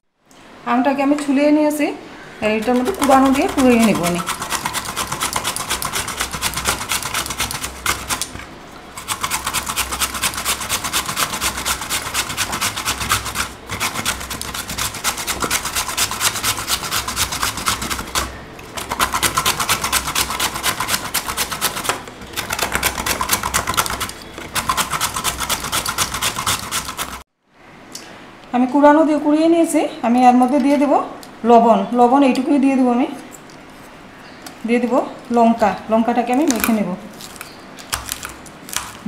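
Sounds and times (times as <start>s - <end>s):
mango rasping on a grater: 2.4s - 27.2s.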